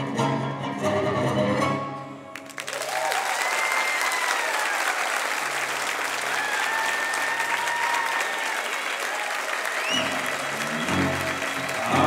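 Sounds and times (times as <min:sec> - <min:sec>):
tango music: 0:00.0 - 0:02.4, 0:10.0 - 0:12.0
audience applause: 0:02.3 - 0:12.0
crowd calling out: 0:06.3 - 0:12.0.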